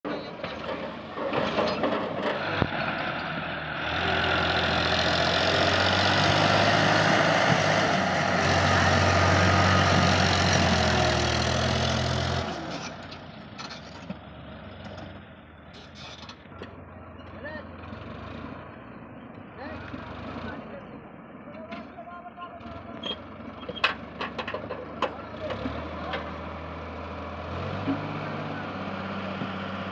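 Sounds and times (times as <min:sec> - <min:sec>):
tractor diesel engine passing: 0:00.1 - 0:29.9.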